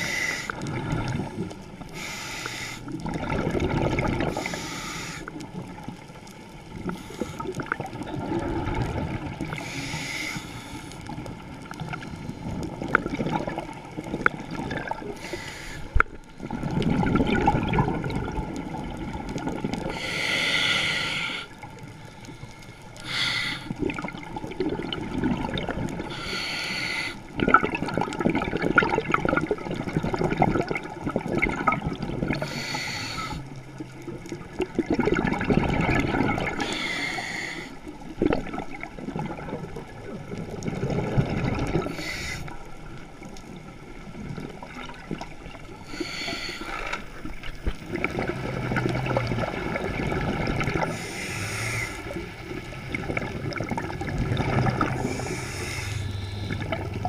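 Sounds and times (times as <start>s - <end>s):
scuba regulator inhalation hiss: 0.0s - 0.6s, 1.9s - 3.0s, 4.3s - 5.4s, 6.9s - 7.5s, 9.5s - 11.0s, 15.2s - 16.0s, 19.8s - 21.6s, 22.3s - 23.8s, 26.0s - 27.4s, 32.3s - 33.5s, 36.5s - 37.9s, 41.9s - 42.7s, 45.8s - 47.0s, 50.8s - 52.4s, 54.9s - 57.0s
rumble of exhaled bubbles: 0.0s - 2.1s, 2.9s - 4.7s, 5.3s - 10.0s, 10.9s - 26.2s, 27.2s - 37.0s, 37.6s - 57.0s.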